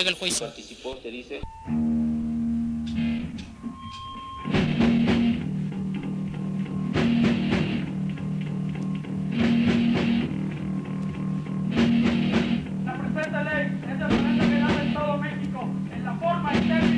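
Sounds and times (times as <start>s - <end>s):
distorted electric guitar chords: 1.6s - 16.9s
drum kit: 4.4s - 16.9s.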